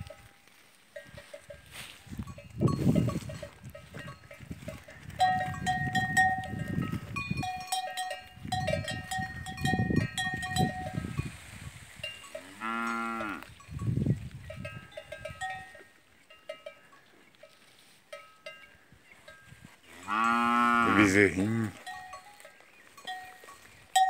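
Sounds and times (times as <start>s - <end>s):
cattle bells clanking: 0.0s - 11.4s, 12.0s - 24.0s
cow mooing: 12.4s - 13.5s, 19.9s - 21.8s.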